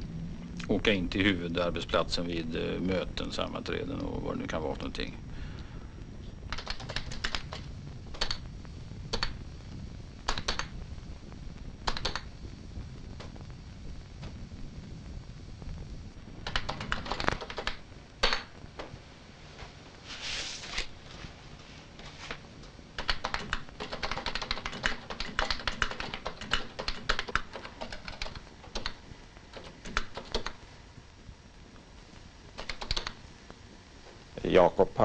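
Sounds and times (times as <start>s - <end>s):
keyboard key clicks: 11.9s - 12.3s.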